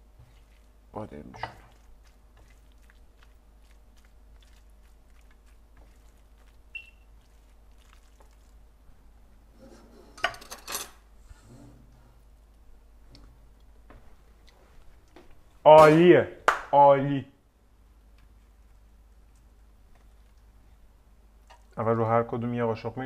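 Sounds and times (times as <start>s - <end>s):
spatula scraping frying pan: 9.5s - 12.0s.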